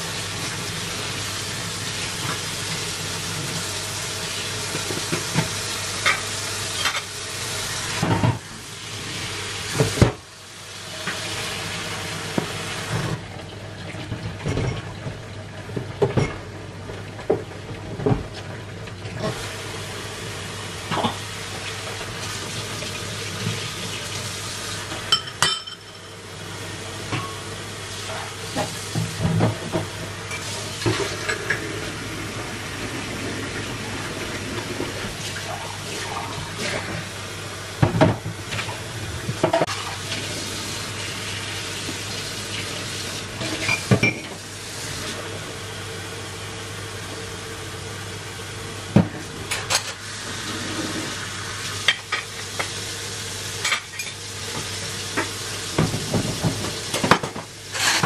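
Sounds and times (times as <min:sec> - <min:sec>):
tap water running: 0:00.0 - 0:58.0
dishes clinking: 0:25.1 - 0:26.2, 0:43.5 - 0:44.4.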